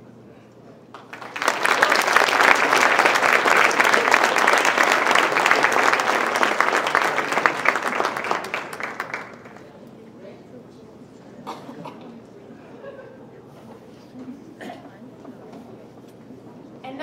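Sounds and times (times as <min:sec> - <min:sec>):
audience applauding: 0:00.9 - 0:09.7.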